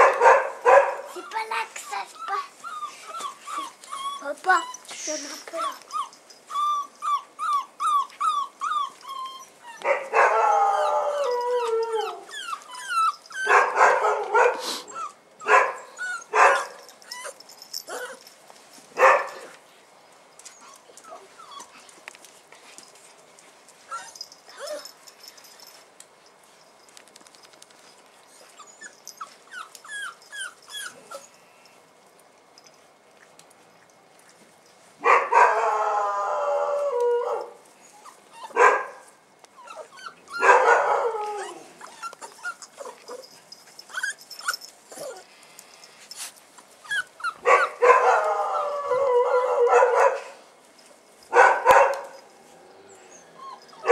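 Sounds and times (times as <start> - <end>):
puppies whimpering and whining: 1.1 - 9.8, 10.4 - 13.5, 14.7 - 15.2, 15.9 - 18.3, 20.4 - 21.9, 23.8 - 25.8, 28.2 - 31.4, 37.8 - 38.6, 39.5 - 40.4, 41.0 - 49.7, 52.4 - 53.9
puppies yelping: 5.6 - 14.2, 14.8 - 18.2, 28.6 - 31.3, 39.6 - 45.3, 52.8 - 53.9.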